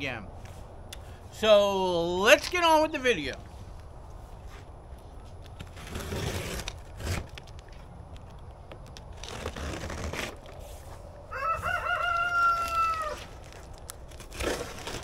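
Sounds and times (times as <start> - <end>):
rooster crowing: 11.3 - 13.3.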